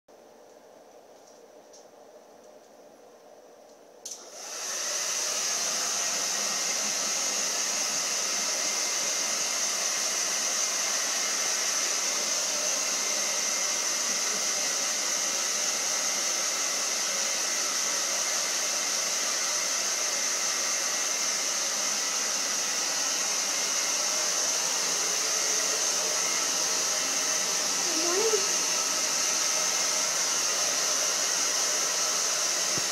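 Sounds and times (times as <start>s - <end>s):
hair dryer running: 4.1s - 32.9s.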